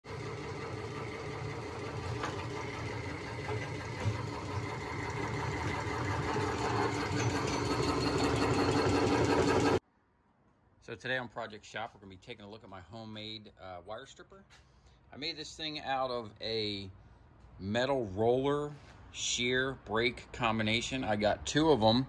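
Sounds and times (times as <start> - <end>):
motor hum: 0.0 - 9.8.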